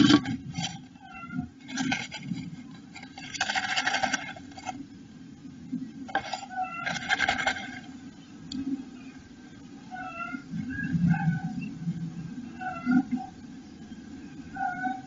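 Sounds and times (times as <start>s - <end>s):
bird rustling nest material: 0.0s - 5.0s, 6.0s - 8.2s.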